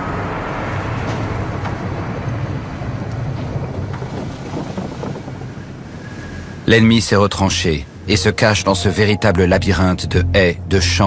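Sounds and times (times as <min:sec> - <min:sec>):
low rumbling noise: 0:07.8 - 0:11.0.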